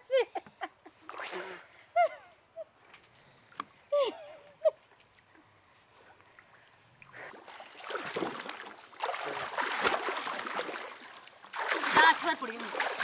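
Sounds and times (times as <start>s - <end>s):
water splashing and sloshing: 4.8s - 13.0s.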